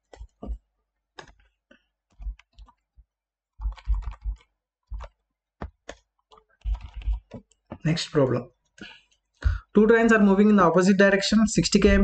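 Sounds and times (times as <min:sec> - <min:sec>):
mouse and keyboard clicks: 0:03.6 - 0:07.8.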